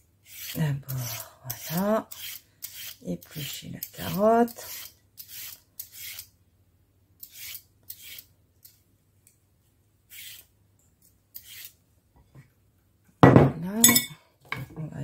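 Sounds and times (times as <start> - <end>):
peeler scraping carrot: 0.2 - 6.3, 7.2 - 8.3, 11.3 - 11.8.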